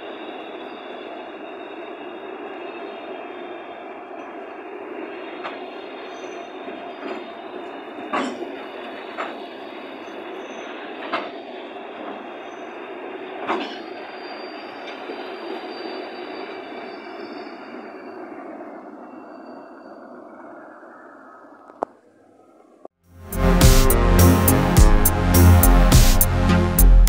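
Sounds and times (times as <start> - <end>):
train wheels rumbling on rails: 0.0 - 20.6
high wheel squeal: 0.0 - 20.8.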